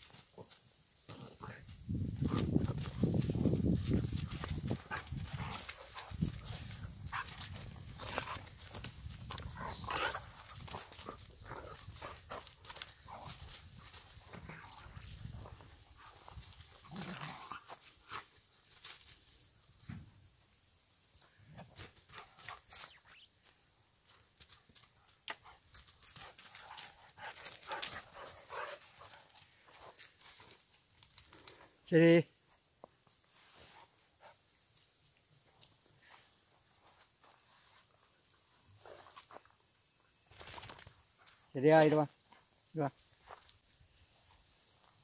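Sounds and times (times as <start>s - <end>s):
dogs panting and snuffling: 0.0s - 19.1s, 24.0s - 31.8s, 32.5s - 39.6s.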